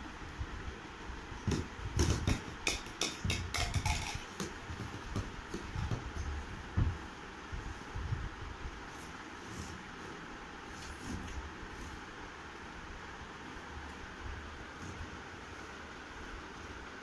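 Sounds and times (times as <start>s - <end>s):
plastic toys knocking and clattering: 1.5s - 6.0s.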